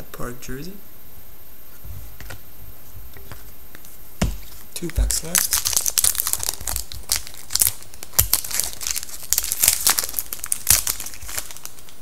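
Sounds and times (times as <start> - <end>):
plastic wrapper crinkling: 4.4 - 12.0.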